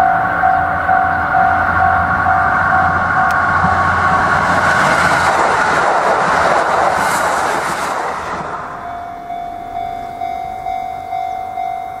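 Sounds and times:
repeating ringing tone: 0.0s - 3.9s, 8.8s - 12.0s
diesel train passing: 0.0s - 12.0s.

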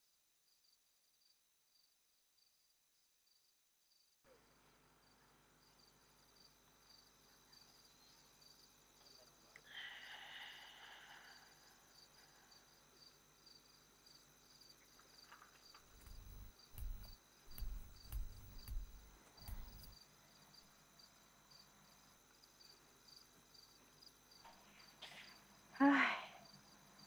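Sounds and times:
crickets chirping: 5.0s - 27.0s
low thumps: 15.9s - 19.9s.

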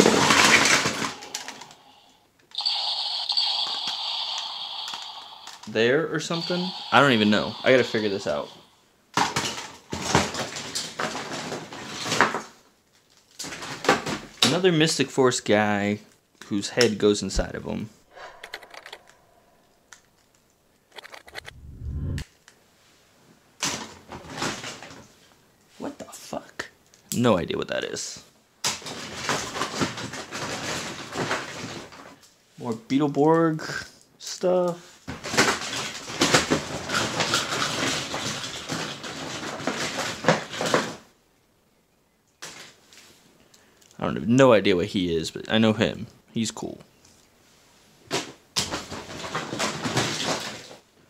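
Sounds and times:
plastic bag rustling: 0.0s - 2.0s
plastic toys clicking and clattering: 0.0s - 8.6s, 9.2s - 14.5s, 23.6s - 25.1s, 28.6s - 32.2s, 34.6s - 41.0s, 48.1s - 50.8s.

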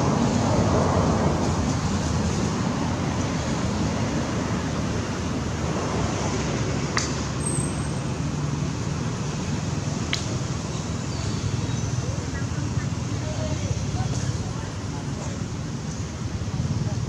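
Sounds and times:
rushing outdoor noise: 0.0s - 17.0s.

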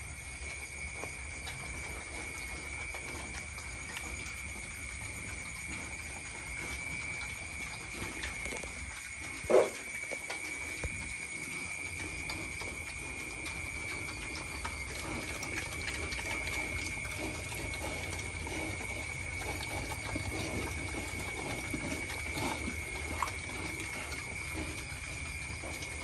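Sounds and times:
pigs crunching dry feed: 0.0s - 26.0s.

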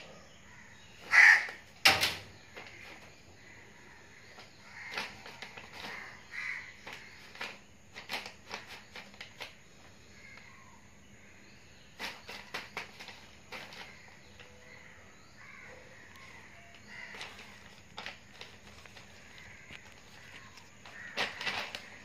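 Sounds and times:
plastic bag crinkling: 16.1s - 22.0s.

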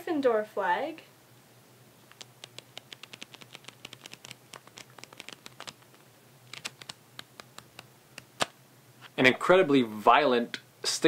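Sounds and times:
flipbook pages flicking: 2.1s - 8.6s.

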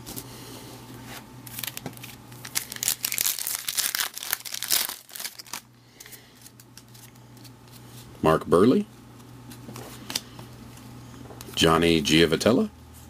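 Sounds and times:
foil wrapper tearing and crinkling: 1.5s - 5.7s.

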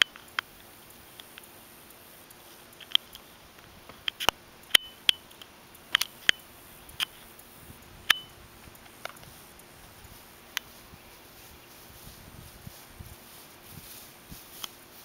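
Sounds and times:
sharp clicks: 0.0s - 9.8s
high ringing tone: 4.7s - 5.3s, 8.1s - 8.5s.

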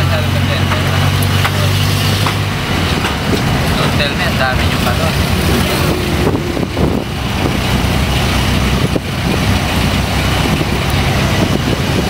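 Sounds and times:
vehicle engine and road rumble: 0.0s - 12.0s
short knocks: 0.7s - 4.0s.

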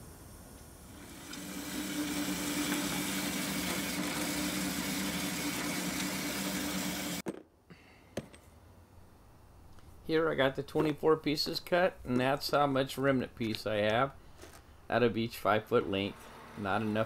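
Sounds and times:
bandsaw motor hum with hiss: 0.0s - 7.2s.

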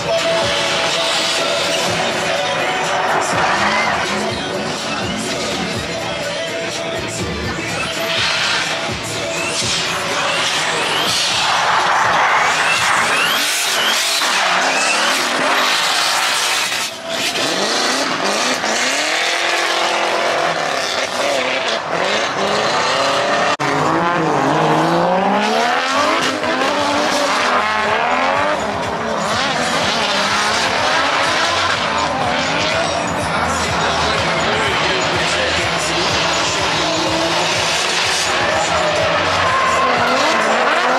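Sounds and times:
car engines revving: 0.0s - 40.9s
tyre squeal: 7.6s - 18.1s.

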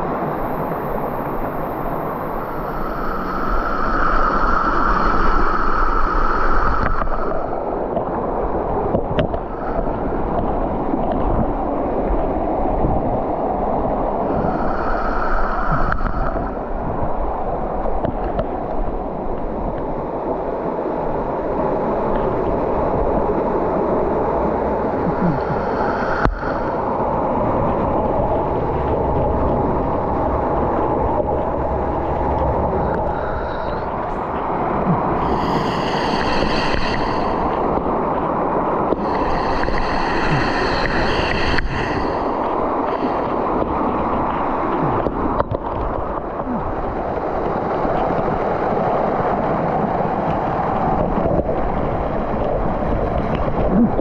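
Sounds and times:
stream water rushing over rocks: 17.0s - 54.0s.

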